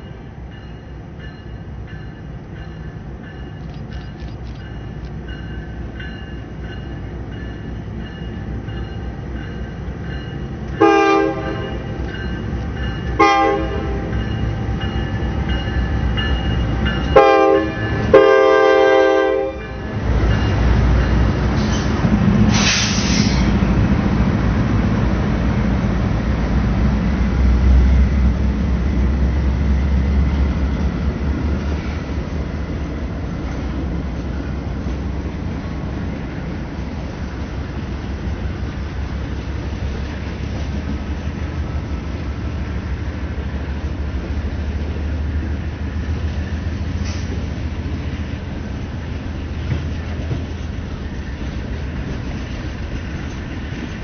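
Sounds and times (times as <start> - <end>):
train rumbling on rails: 0.0 - 54.0
locomotive air horn blasts: 10.8 - 12.0, 13.2 - 14.2, 17.2 - 19.9.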